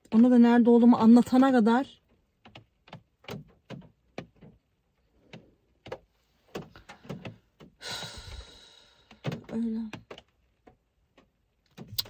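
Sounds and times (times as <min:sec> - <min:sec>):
raindrops tapping on car roof: 0:01.1 - 0:12.0
person sighing: 0:07.8 - 0:09.0.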